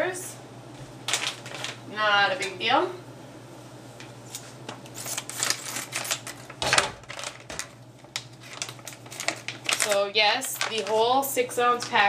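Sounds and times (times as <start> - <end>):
plastic crinkling: 1.1 - 1.8, 4.9 - 12.0.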